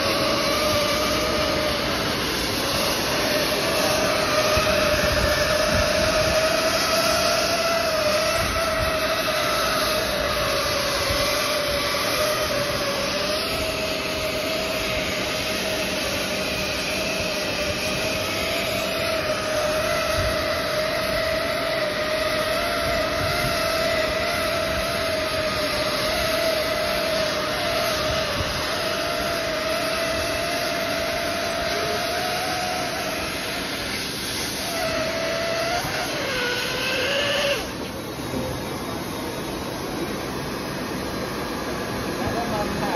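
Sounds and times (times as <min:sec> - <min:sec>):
air hissing: 0:00.0 - 0:42.9
hot-air welding machine whine: 0:00.0 - 0:42.9.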